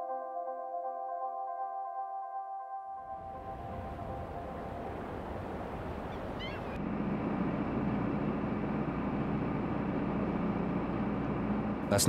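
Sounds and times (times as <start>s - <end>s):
wind blowing: 3.1s - 11.8s
boat engine droning: 3.1s - 12.0s
bird chirps: 5.4s - 6.8s.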